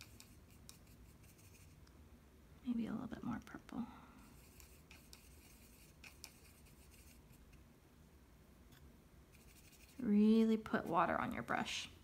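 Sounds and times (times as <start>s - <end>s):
brush scratching in palette: 0.0s - 1.9s, 4.2s - 7.6s, 9.3s - 11.5s.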